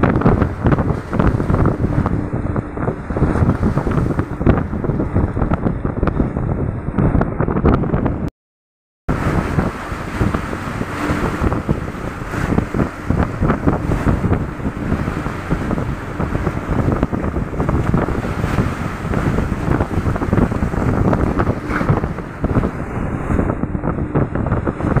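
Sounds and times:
waves breaking: 0.0s - 6.3s, 9.1s - 25.0s
wind rumbling on microphone: 0.0s - 8.3s, 9.1s - 25.0s
water washing across deck: 9.1s - 25.0s.

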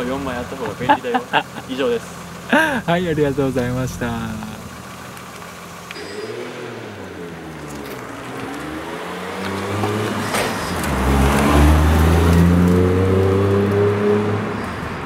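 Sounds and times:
car engine passing by: 6.0s - 15.0s.

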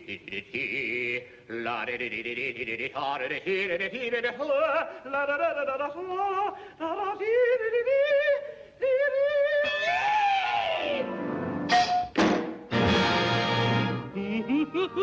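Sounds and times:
cartoon character singing warbling: 9.2s - 11.1s.

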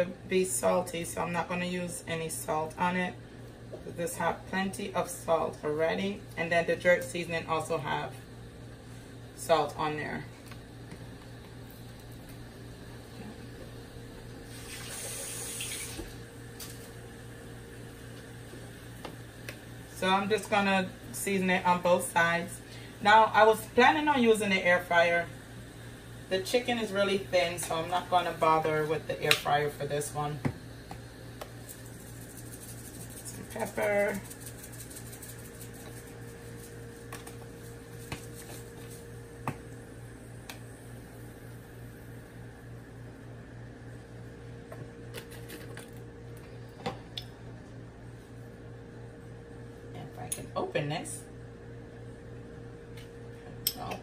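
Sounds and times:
steady low hum: 0.0s - 54.0s
kitchen tap running: 14.4s - 16.2s.

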